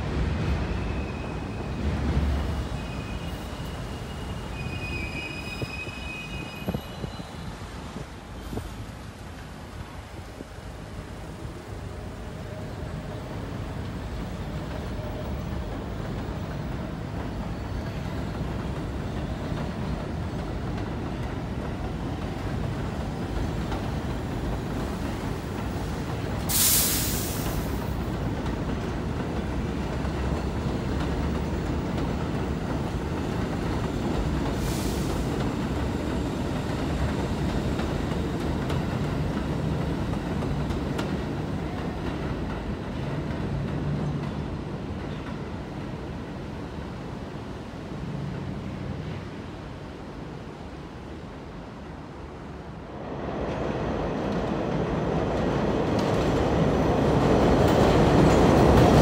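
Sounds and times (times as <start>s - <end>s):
train rumbling on elevated track: 0.0s - 59.0s
sharp hiss: 26.3s - 28.0s, 34.5s - 35.4s.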